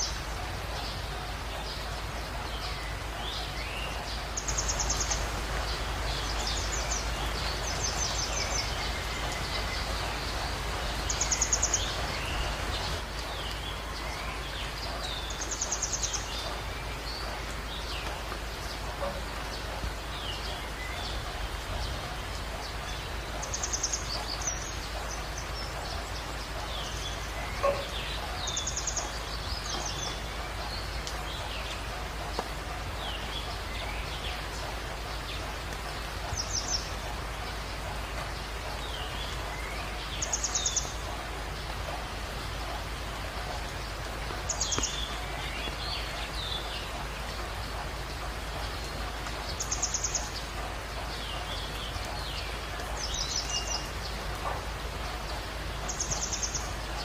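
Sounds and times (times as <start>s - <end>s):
birds chirping: 0.0s - 57.0s
heavy rain: 0.0s - 57.0s.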